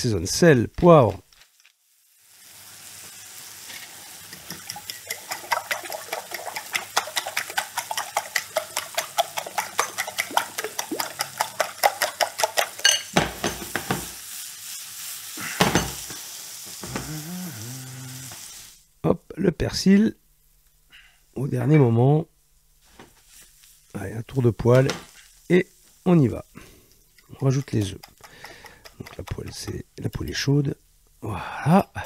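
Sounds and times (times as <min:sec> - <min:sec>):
food sizzling in pan: 0:00.4 - 0:19.0, 0:22.8 - 0:31.4
fork beating eggs in bowl: 0:04.3 - 0:13.1, 0:27.2 - 0:30.4.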